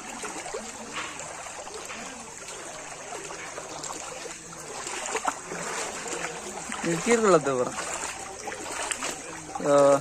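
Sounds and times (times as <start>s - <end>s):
floodwater flowing: 0.0s - 10.0s.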